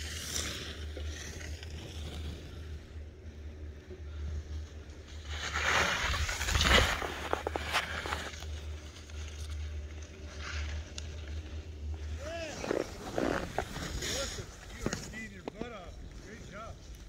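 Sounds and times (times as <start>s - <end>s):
skis hissing through snow: 0.0s - 2.9s, 5.0s - 9.4s, 12.1s - 15.4s.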